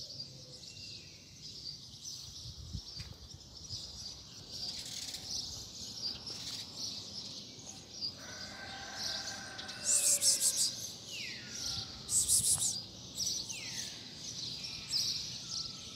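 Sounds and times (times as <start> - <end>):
small birds chirping: 0.0 - 15.7
falling whistled bird calls: 9.8 - 10.8, 12.1 - 12.8.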